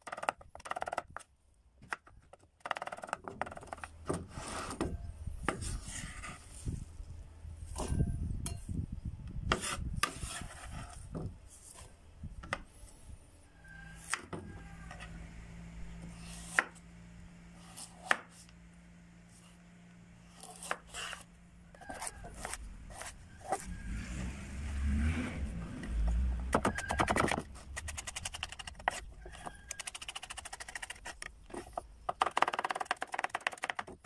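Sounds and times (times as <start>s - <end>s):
knife slicing carrot: 20.3s - 23.6s.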